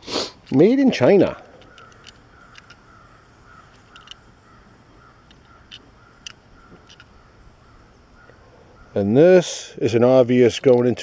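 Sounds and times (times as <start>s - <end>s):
metal toy car clicking: 1.5s - 2.8s, 3.7s - 4.2s.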